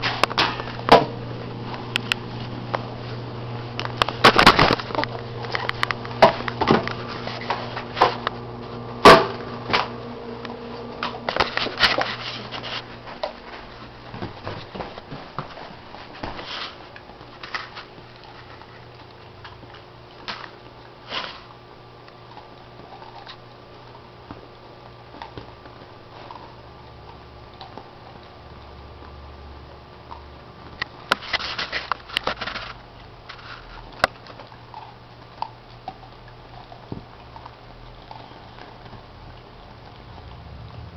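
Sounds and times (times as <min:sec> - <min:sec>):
puppy chewing ice cube: 0:10.4 - 0:40.9.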